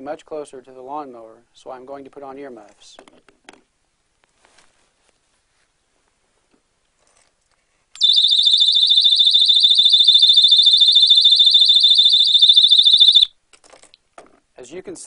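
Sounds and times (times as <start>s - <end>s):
electronic alarm warbling tone: 8.0s - 13.3s.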